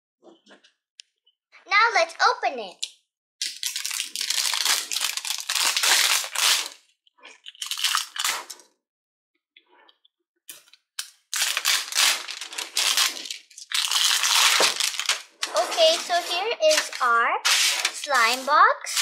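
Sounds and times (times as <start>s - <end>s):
packaging crinkling: 3.4s - 6.8s, 7.4s - 8.6s, 11.0s - 16.1s, 16.7s - 19.0s.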